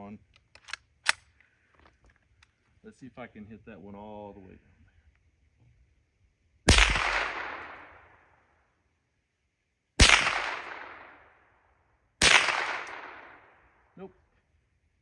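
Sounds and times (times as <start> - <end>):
rifle shots echoing: 6.7 - 8.3, 10.0 - 11.5, 12.2 - 13.8.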